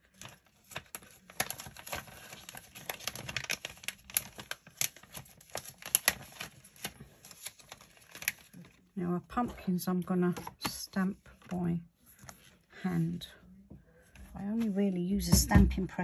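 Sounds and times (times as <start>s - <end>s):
plastic packet rustling: 0.0s - 8.9s.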